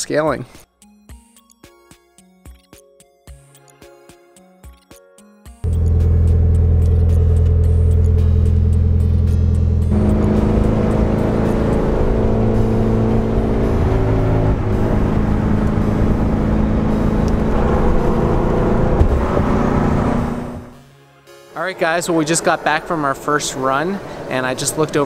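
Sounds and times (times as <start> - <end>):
background music with held chords: 0.6 - 24.2
car running on road: 5.6 - 20.8.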